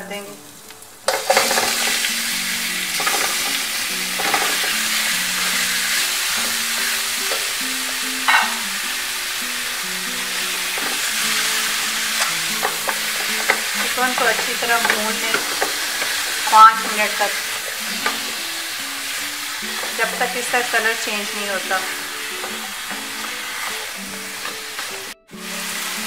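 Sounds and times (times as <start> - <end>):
chicken sizzling in hot oil: 0.0 - 26.0
spatula clacking against pot: 12.1 - 16.4.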